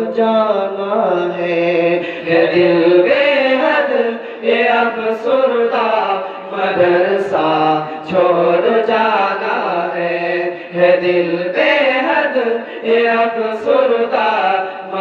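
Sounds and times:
group of men chanting in unison: 0.2 - 15.0.

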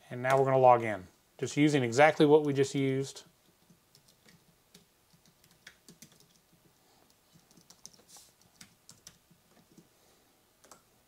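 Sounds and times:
faint keyboard typing: 3.4 - 9.9, 10.6 - 10.9.

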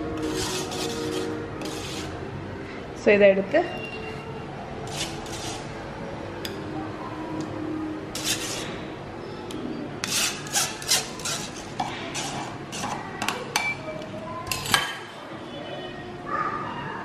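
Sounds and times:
metal spoon scraping glass: 0.0 - 2.2, 4.8 - 5.7, 8.2 - 8.7, 10.0 - 13.0.

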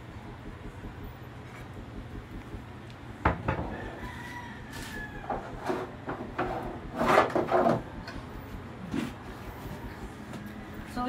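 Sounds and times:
drawer sliding and knocking: 5.6 - 7.9.

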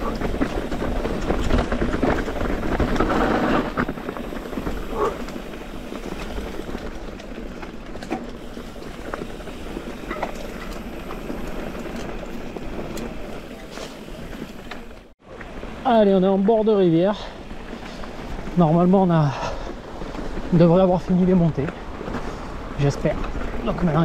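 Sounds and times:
bike rattles and knocks: 0.0 - 15.6
bike tyre and trail noise: 0.0 - 24.0.

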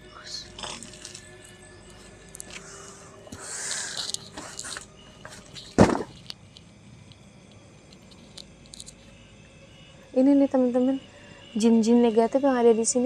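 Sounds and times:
faint insects chirping: 0.0 - 13.0
person rustling and shuffling: 0.8 - 6.4
loud sudden thud: 5.8 - 6.1.

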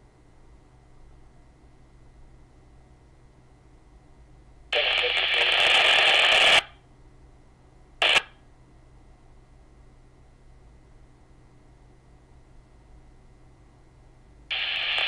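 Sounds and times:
static-laden radio voice: 4.8 - 6.6, 8.0 - 8.2
radio squelch burst: 4.8 - 6.7, 8.0 - 8.3, 14.5 - 15.0.

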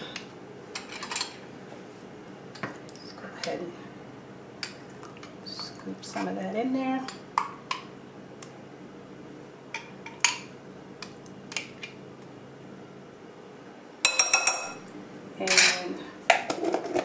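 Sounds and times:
spoon clinking against bowl: 14.0 - 14.8.

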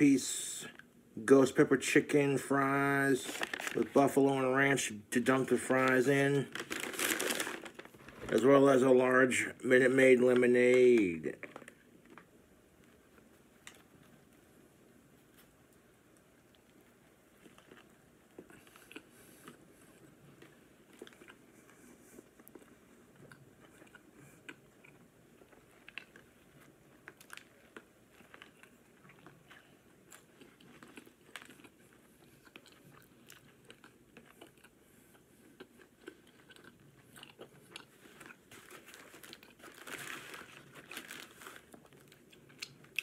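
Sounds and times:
person chewing: 16.5 - 43.0.

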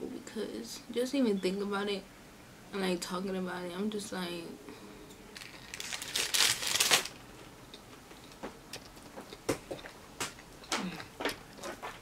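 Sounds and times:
person chewing food: 7.6 - 12.0.

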